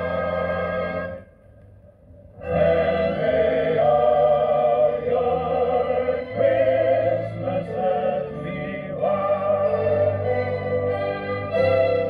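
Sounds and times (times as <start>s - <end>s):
vocal music from record player: 2.4s - 11.6s.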